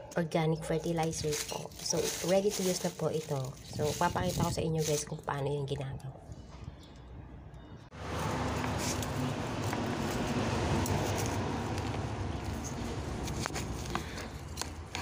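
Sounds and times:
trowel scraping dry soil: 1.0s - 5.2s, 8.1s - 15.0s.

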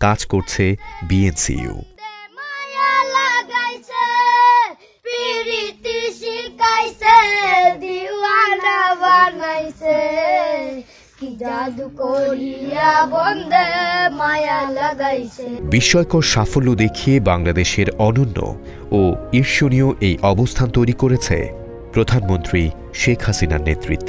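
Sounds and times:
boy singing in a high voice: 0.4s - 15.6s.

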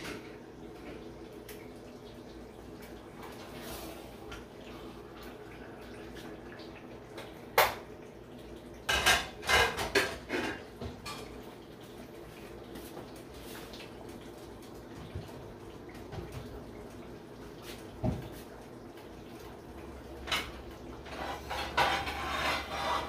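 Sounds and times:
cooking pots and lids clanking: 8.9s - 11.4s, 20.2s - 23.0s.

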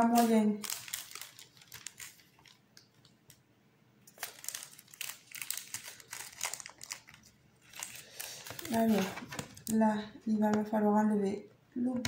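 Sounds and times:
plastic packaging crinkling: 0.0s - 3.4s, 4.1s - 10.0s.

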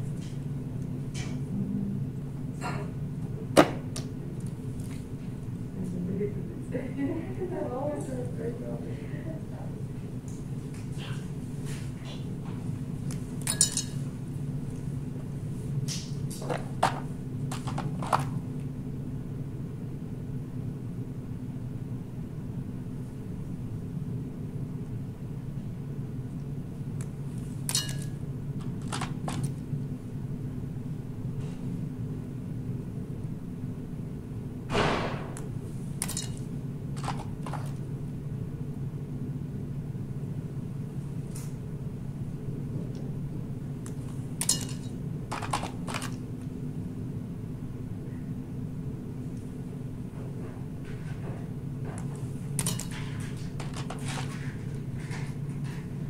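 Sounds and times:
steady low hum: 0.0s - 56.0s
micropipette clicks and rustles: 15.8s - 18.7s, 35.4s - 37.9s, 50.1s - 56.0s.

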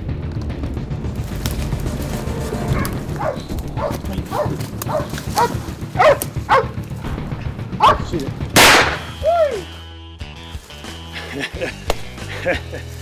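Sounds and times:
dogs barking and baying: 2.7s - 6.9s, 7.7s - 8.1s
gunshot: 8.6s - 9.2s.

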